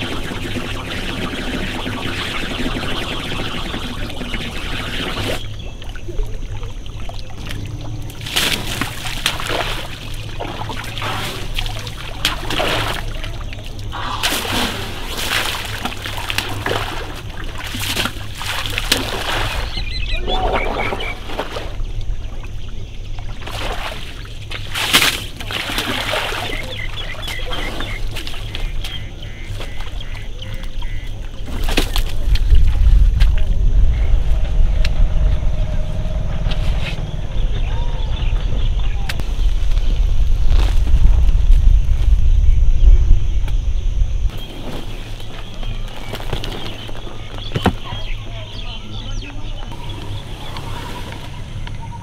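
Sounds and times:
steady low hum: 0:00.0 - 0:52.0
elephants splashing in mud: 0:07.6 - 0:19.8, 0:23.4 - 0:30.0.

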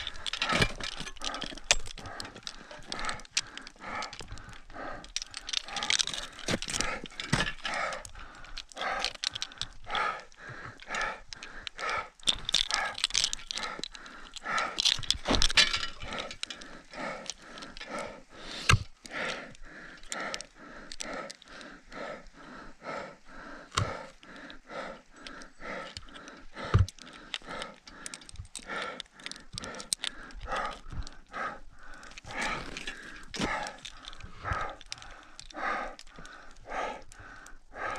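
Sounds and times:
person panting hard: 0:00.0 - 0:37.9.

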